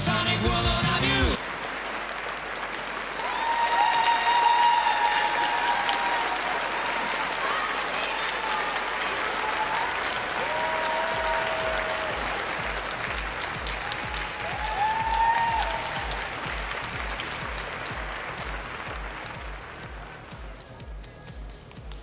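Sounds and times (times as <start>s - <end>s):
audience applauding: 0.0s - 22.0s
music with steady low beat: 11.6s - 22.0s.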